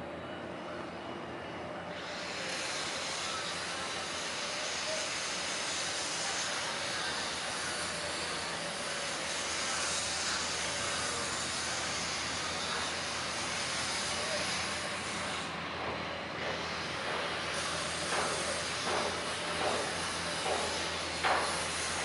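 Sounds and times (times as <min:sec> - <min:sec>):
faint voices: 0:00.0 - 0:22.0.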